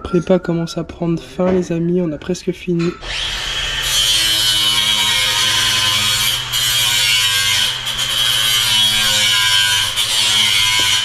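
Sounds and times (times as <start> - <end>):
electric power tool motor whining: 3.0 - 11.0.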